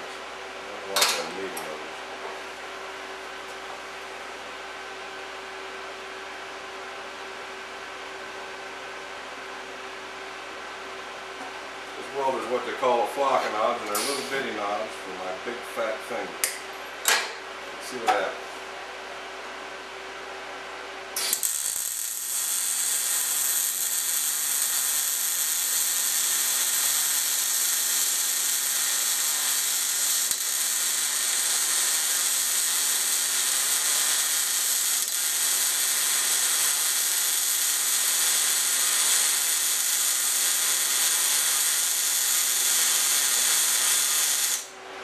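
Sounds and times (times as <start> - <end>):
welding arc crackling: 21.2 - 44.7.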